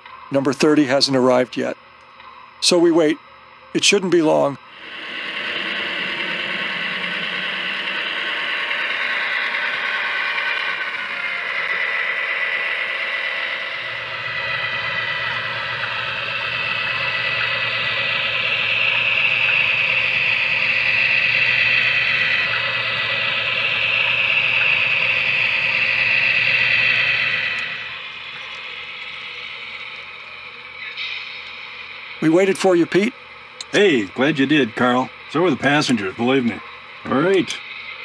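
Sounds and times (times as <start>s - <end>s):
model diesel train running past: 4.7s - 30.1s.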